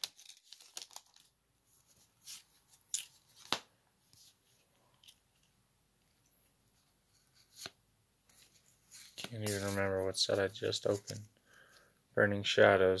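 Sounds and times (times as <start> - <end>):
foil wrapper crinkling: 0.0 - 1.3.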